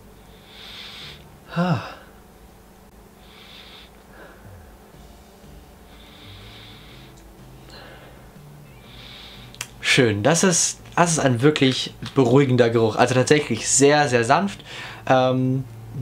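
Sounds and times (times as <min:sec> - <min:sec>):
man sniffing: 0:00.4 - 0:02.2, 0:03.2 - 0:04.9, 0:05.9 - 0:08.2, 0:08.9 - 0:09.6
man humming hm: 0:01.5 - 0:02.2, 0:04.1 - 0:05.1.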